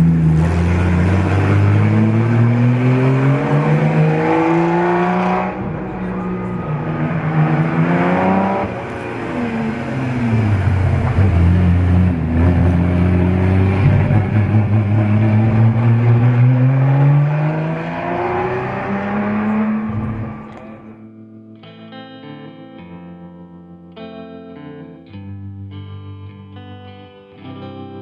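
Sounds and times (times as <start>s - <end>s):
racing car engine accelerating: 0.0s - 21.0s.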